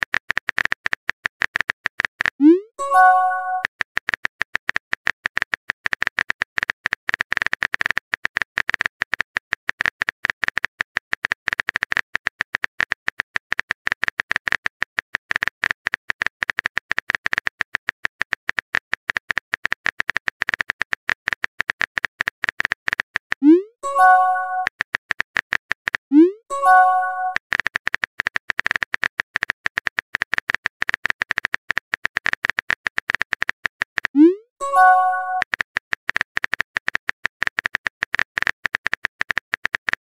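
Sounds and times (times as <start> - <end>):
keyboard typing clicks: 2.4 - 3.7, 23.4 - 24.7, 26.1 - 27.4, 33.1 - 40.0.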